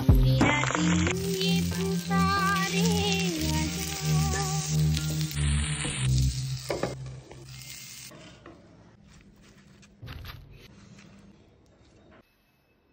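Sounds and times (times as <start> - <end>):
food sizzling in a pan: 0.9 - 8.2.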